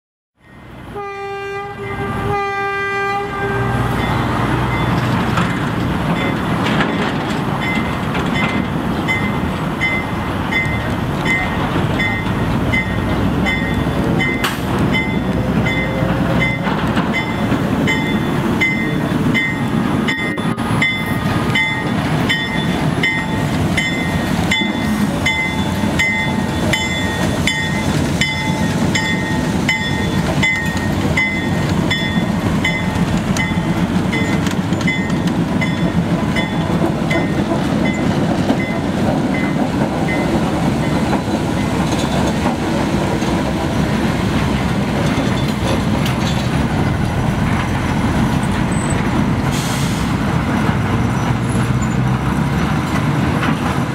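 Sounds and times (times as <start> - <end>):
wheels rumbling on rails: 0.4 - 53.9
locomotive horn blasts: 0.9 - 4.1
diesel locomotive engine running: 3.2 - 53.9
bell ringing: 9.1 - 38.8.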